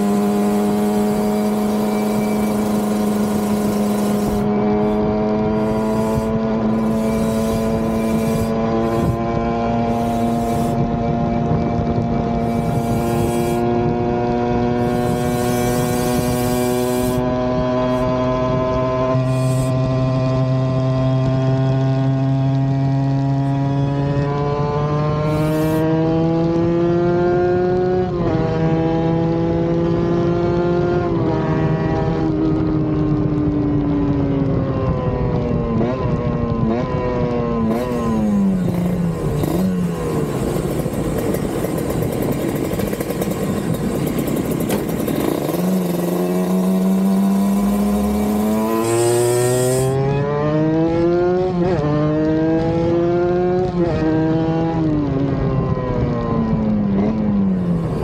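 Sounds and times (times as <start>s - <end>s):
loud rushing noise: 0.0s - 11.1s, 12.3s - 18.1s
motorcycle engine revving: 0.0s - 58.0s.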